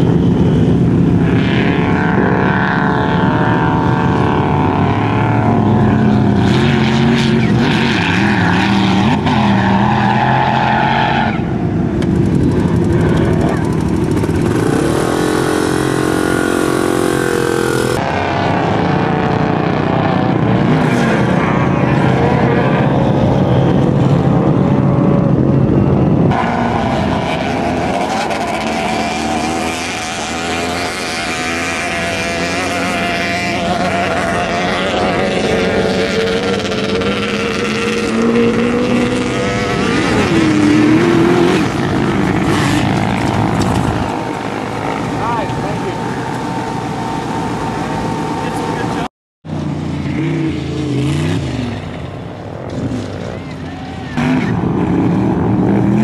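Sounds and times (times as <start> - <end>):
sand rail engines revving: 0.0 - 56.0.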